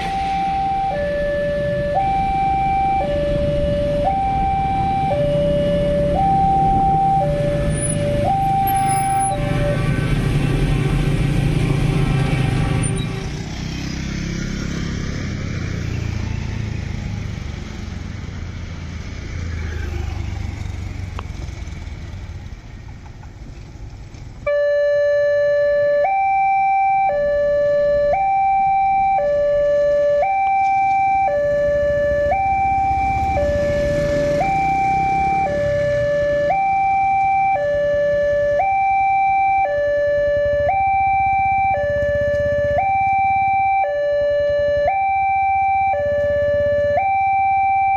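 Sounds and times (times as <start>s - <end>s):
two-tone crossing warning alarm: 0.0s - 13.3s, 24.4s - 47.9s
motorcycles passing: 3.1s - 24.4s, 31.3s - 37.0s, 39.7s - 45.3s.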